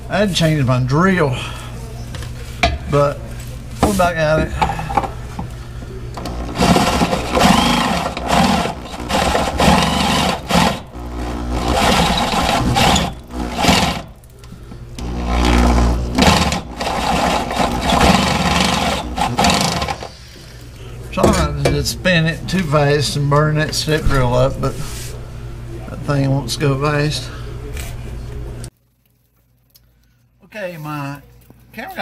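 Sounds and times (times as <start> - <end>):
power drill drilling into metal: 6.2 - 14.1, 15.0 - 20.1.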